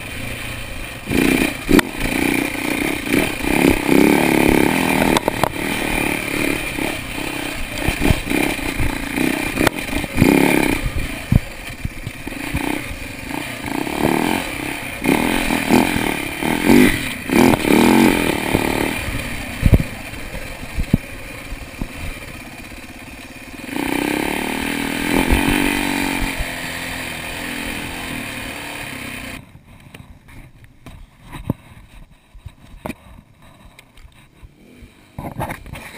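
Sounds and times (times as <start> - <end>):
dirt bike engine revving: 0.0 - 29.4
knocks and clatter of bike: 1.0 - 22.8, 29.3 - 34.3.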